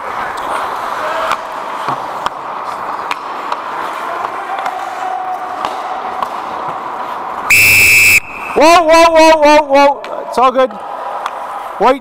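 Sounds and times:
hockey sticks and puck clacking: 0.0s - 7.5s, 11.0s - 11.7s
skates scraping on ice: 0.0s - 7.5s.

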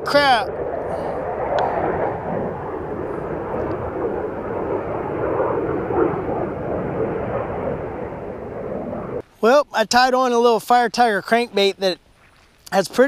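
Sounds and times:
jet engine roaring: 0.0s - 9.2s.

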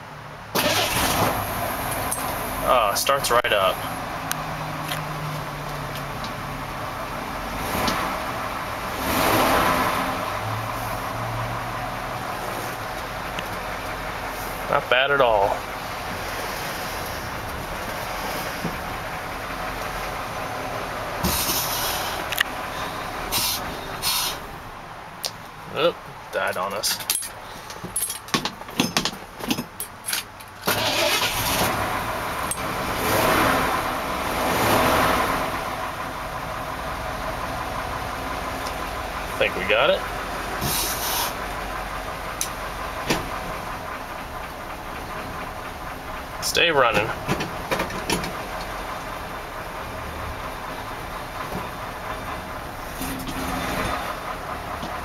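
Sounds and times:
truck engine idling: 0.0s - 55.0s
short hiss: 23.3s - 24.4s
engine running with throttle: 30.6s - 55.0s.

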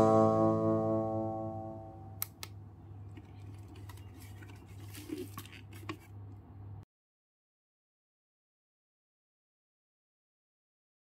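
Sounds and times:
guitar music: 0.0s - 2.2s
low steady hum: 0.0s - 6.8s.

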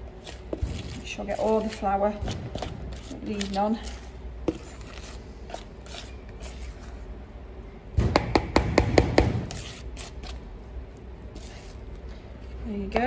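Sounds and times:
spoon scraping batter in bowl: 0.1s - 7.1s, 9.4s - 12.1s.

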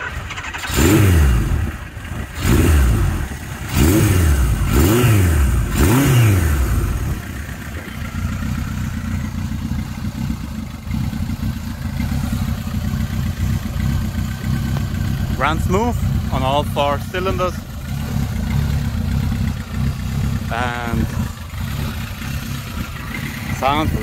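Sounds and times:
motorcycle engine revving and idling: 0.0s - 24.0s.

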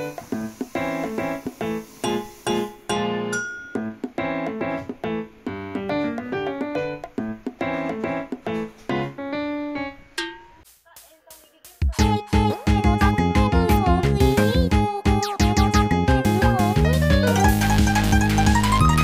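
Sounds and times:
keyboard melody of repeated notes: 2.6s - 10.7s, 12.0s - 19.0s.

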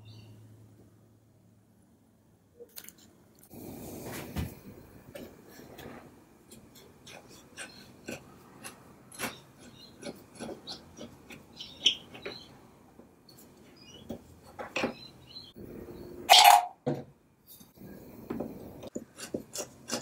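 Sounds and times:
metal tool scraping wood: 19.0s - 20.0s.

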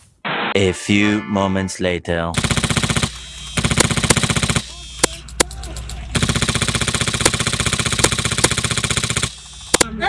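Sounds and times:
airsoft gun firing full auto: 2.4s - 5.2s, 6.1s - 9.8s.

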